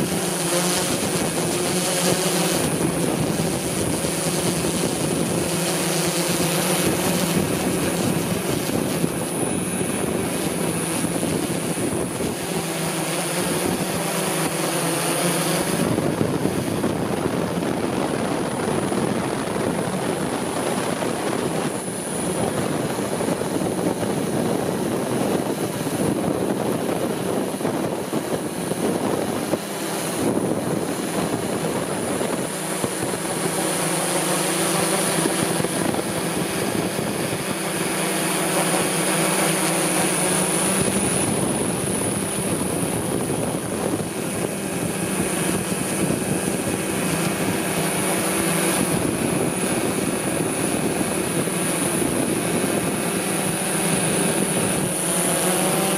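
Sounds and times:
drone rotors whirring: 0.0 - 55.9.

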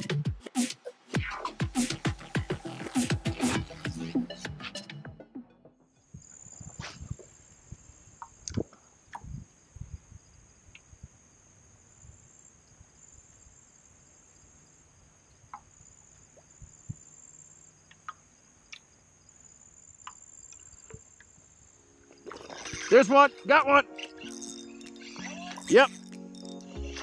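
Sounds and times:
insect chorus: 6.0 - 27.0.

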